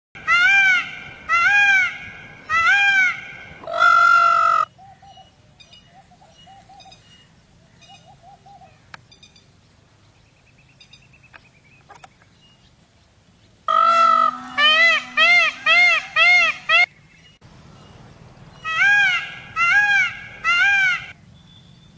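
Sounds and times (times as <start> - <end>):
peafowl wailing calls: 0.2 - 5.2, 13.7 - 16.9, 18.6 - 21.2.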